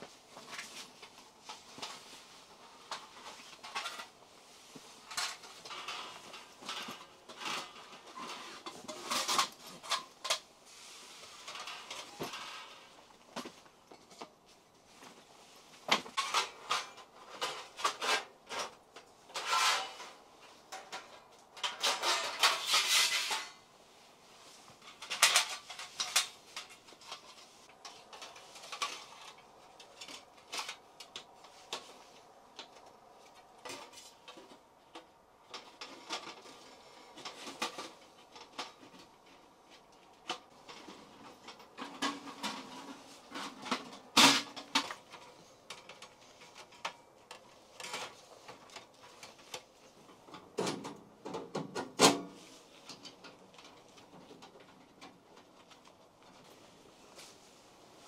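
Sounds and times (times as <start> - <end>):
rustling scrape: 0.1 - 32.4, 35.6 - 50.2, 56.3 - 58.0
clinks and knocks of handled objects: 24.7 - 52.2.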